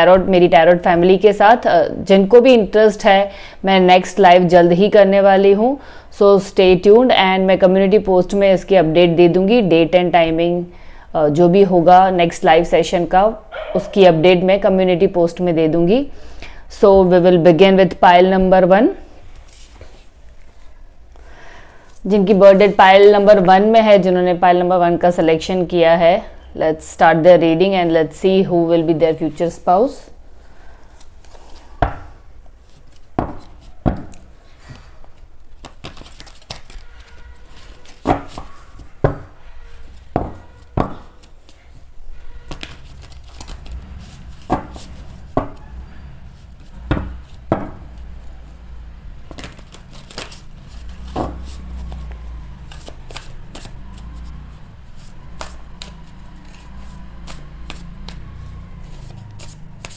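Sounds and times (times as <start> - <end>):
cards shuffling clicks: 35.5 - 38.6, 42.5 - 45.0, 49.3 - 52.1, 52.7 - 54.3, 55.0 - 58.2, 58.8 - 59.9
cards knocking on table: 38.0 - 39.3, 40.1 - 41.1, 44.5 - 44.8, 46.9 - 47.8, 51.1 - 51.5.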